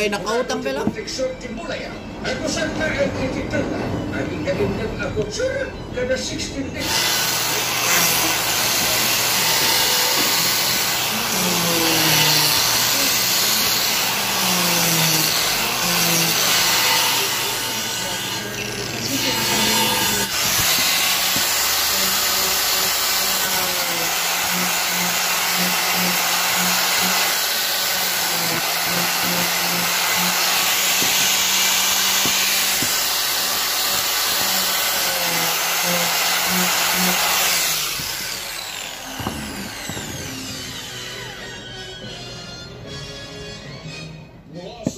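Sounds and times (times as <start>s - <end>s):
angle grinder sanding wood: 6.8s - 41.7s.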